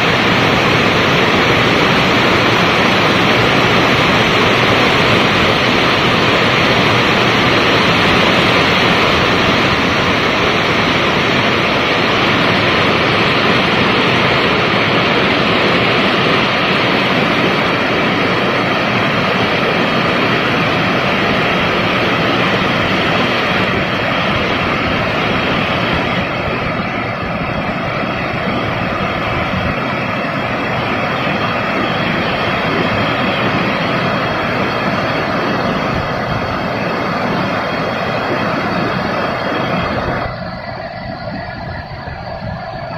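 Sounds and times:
heavy rain on rooftops: 0:00.0 - 0:42.9.

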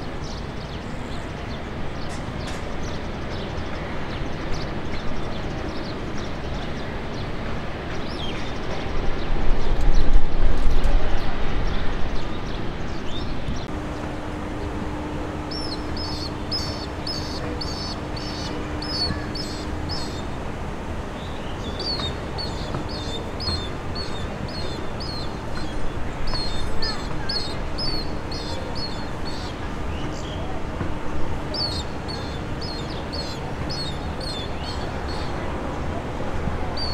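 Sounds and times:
steady low rumble: 0:08.8 - 0:36.9
bird chirping: 0:13.1 - 0:20.4, 0:21.1 - 0:35.5.

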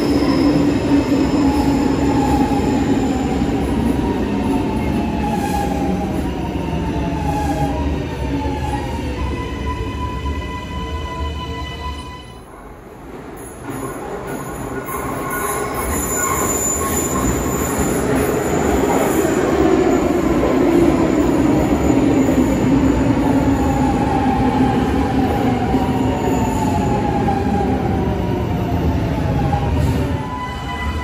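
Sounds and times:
high wheel squeal: 0:13.7 - 0:18.3.

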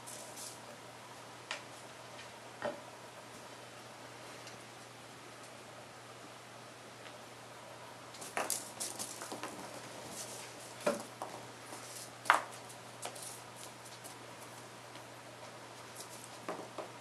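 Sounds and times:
kitten paws scrabbling on tile: 0:08.2 - 0:14.2.

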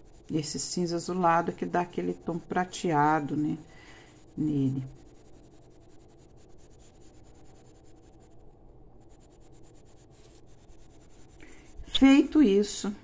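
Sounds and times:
pencil scratching on paper: 0:00.0 - 0:12.8.

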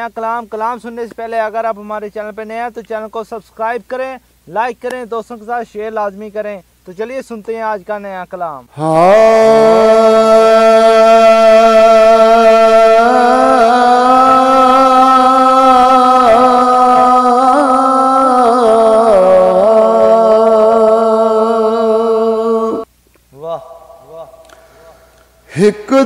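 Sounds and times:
man singing a long note: 0:08.7 - 0:24.6.

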